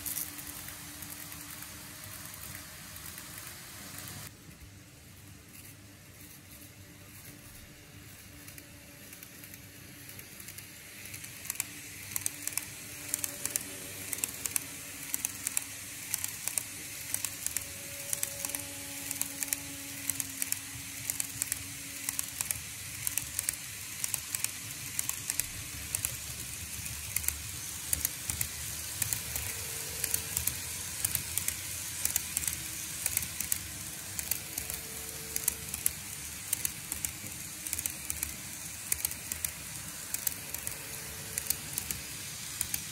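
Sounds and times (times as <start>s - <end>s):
model train wheels and motors rolling: 0.0s - 42.9s.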